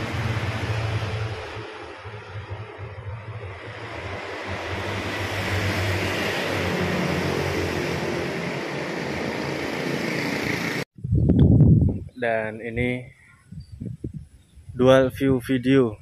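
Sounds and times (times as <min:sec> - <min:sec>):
street traffic noise: 0:00.0 - 0:10.9.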